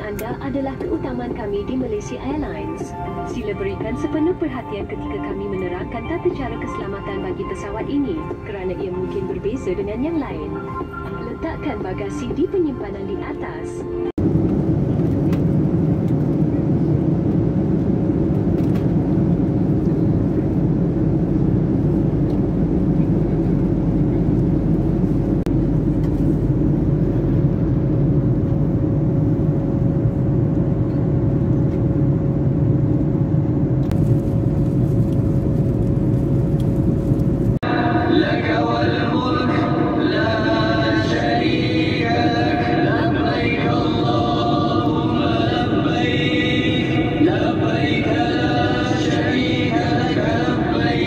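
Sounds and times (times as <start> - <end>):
airliner cabin rumble: 0.0 - 51.0
chanting: 37.6 - 51.0.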